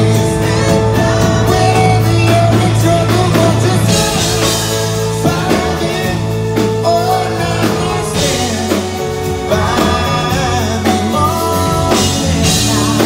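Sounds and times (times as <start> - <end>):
backing band playing: 0.0 - 13.0
male vocal group singing: 0.0 - 13.0.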